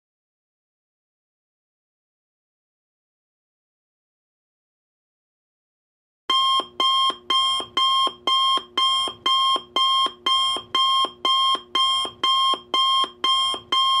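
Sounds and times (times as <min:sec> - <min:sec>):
alarm clock beeping: 0:06.3 - 0:14.0.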